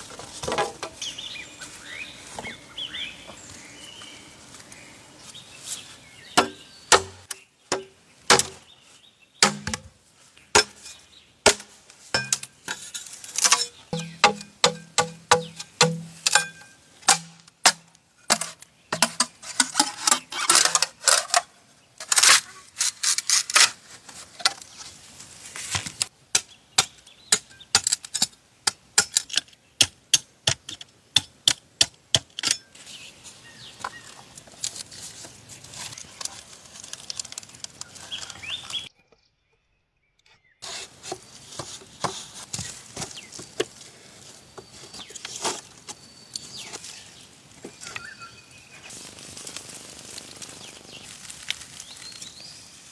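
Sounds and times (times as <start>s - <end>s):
bamboo scraping and cracking: 0.0s - 1.2s, 4.6s - 8.8s, 9.4s - 39.0s, 40.2s - 52.9s
knife chopping bamboo on wood: 6.4s - 8.6s, 9.4s - 9.9s, 10.5s - 10.9s, 11.5s - 12.5s, 13.5s - 19.3s.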